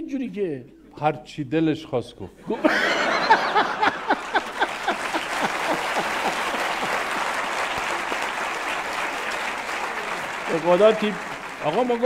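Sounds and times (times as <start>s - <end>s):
audience laughter: 2.4s - 8.9s
audience applauding: 2.7s - 12.0s.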